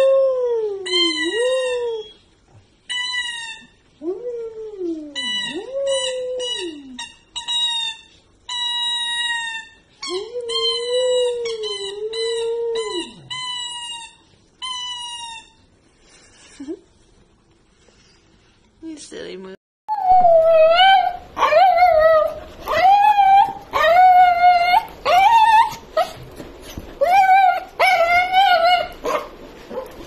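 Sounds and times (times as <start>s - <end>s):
squeaky toy squeaking: 2.9s - 3.8s, 5.2s - 9.8s, 10.6s - 15.6s
dog howling: 10.0s - 13.4s, 19.9s - 26.2s, 27.0s - 29.9s.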